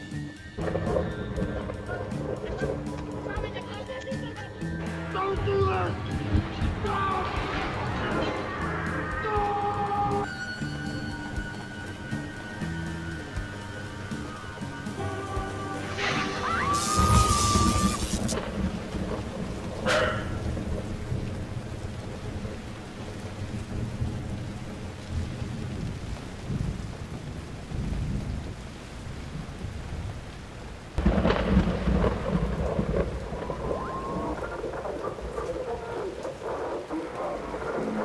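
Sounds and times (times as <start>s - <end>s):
steady rain: 0.0s - 38.0s
loud thunderclap: 0.6s - 3.6s, 5.6s - 10.2s, 15.0s - 28.6s, 31.0s - 38.0s
low rolling thunder: 0.6s - 3.7s, 5.6s - 10.3s, 11.1s - 38.0s.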